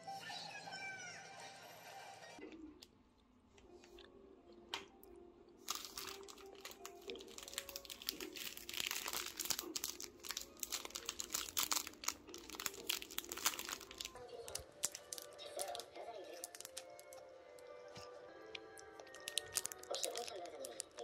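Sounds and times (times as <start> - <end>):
plastic wrapping crinkling: 5.6 - 17.2, 18.8 - 21.0.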